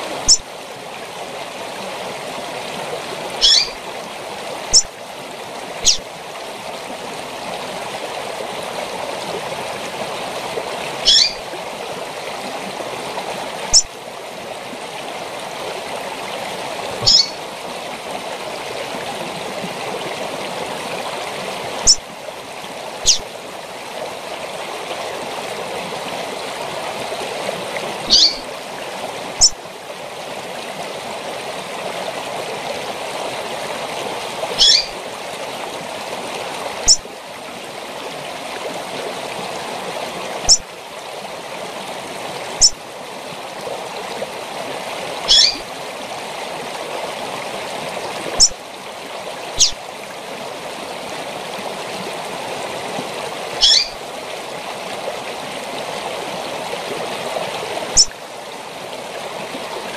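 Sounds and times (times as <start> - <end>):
waterfall rushing: 0.0 - 59.9
bird calling: 3.4 - 3.8, 5.8 - 6.0, 11.0 - 11.4, 17.0 - 17.4, 21.8 - 22.0, 23.0 - 23.3, 28.1 - 28.5, 34.6 - 35.0, 45.3 - 45.6, 49.6 - 49.8, 53.6 - 54.0.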